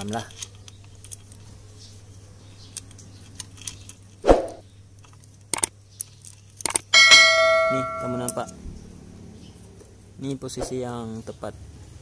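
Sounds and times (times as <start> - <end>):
metallic clicks of timing chain: 6.6 - 8.6
loud metal knock: 7.0 - 8.5.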